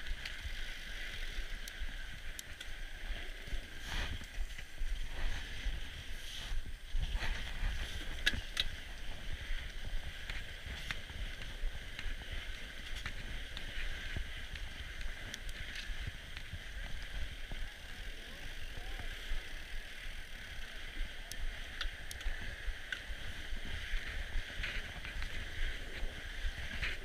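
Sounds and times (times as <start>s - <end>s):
bike clicks and rattles: 0.0s - 27.0s
bike tyres rumbling on snow: 0.0s - 27.0s.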